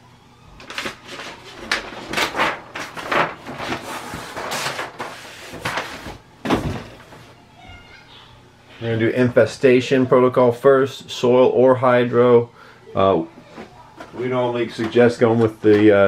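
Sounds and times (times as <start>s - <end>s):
paper sheets rustling: 0.6s - 7.4s.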